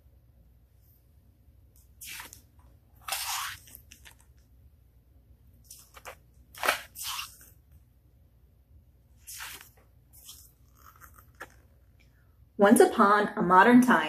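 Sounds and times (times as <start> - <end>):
book pages turning: 1.9 - 4.4, 5.7 - 7.6, 9.2 - 11.9.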